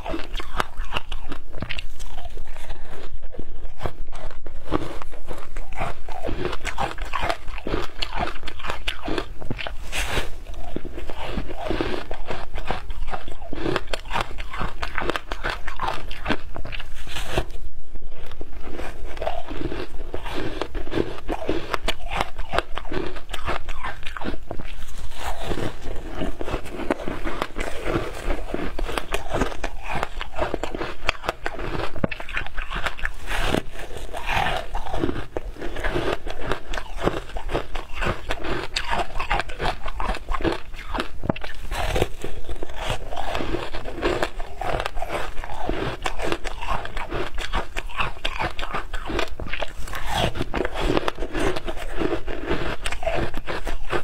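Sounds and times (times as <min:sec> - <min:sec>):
shaved ice crunching: 0:18.7 - 0:54.0.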